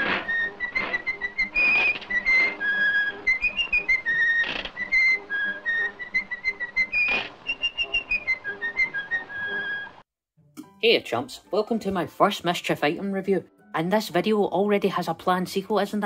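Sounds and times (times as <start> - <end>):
person whistling a tune: 0.2 - 10.0.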